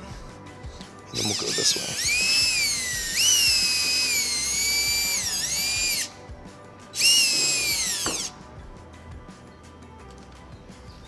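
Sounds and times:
drill boring through wood: 1.2 - 6.1, 7.0 - 8.3.

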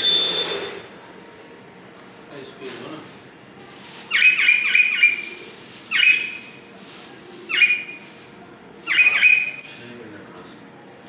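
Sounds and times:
parrots screeching: 4.1 - 5.3, 5.9 - 6.4, 8.9 - 9.6.

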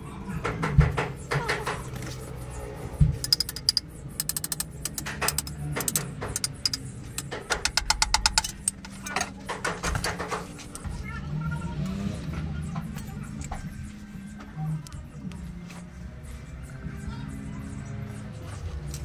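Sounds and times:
rapid tool clicks: 3.2 - 9.0.

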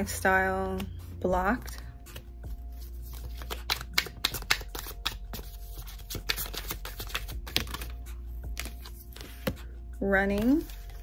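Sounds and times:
cards being shuffled: 0.6 - 11.0.

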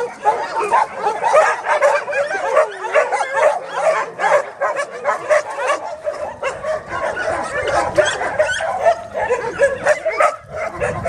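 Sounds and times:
dogs barking and whining: 0.0 - 11.0.

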